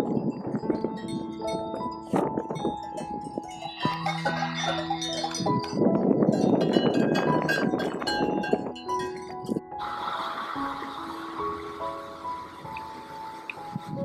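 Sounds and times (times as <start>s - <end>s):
cowbells clanking: 0.0s - 9.6s.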